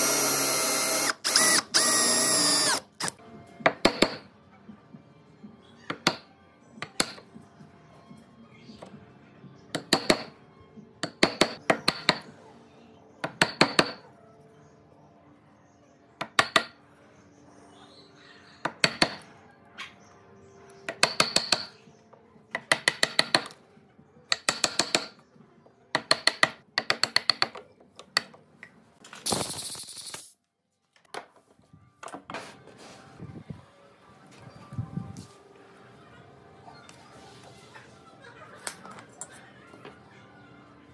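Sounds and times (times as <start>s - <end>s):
chisel being struck: 11.0s - 12.3s, 13.2s - 14.0s, 16.2s - 16.8s, 18.7s - 19.2s, 20.9s - 21.8s, 22.5s - 23.6s, 24.3s - 25.2s, 26.0s - 27.6s.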